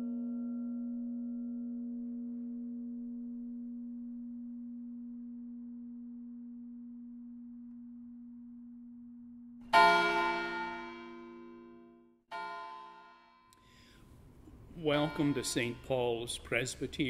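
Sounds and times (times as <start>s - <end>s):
church bell tolling: 9.7s - 13.5s, 14.7s - 17.0s.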